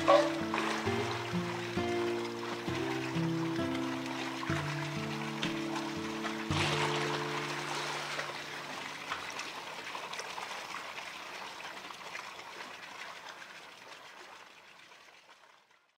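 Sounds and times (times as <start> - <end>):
background music: 0.0 - 9.2
running water rushing: 0.0 - 15.6.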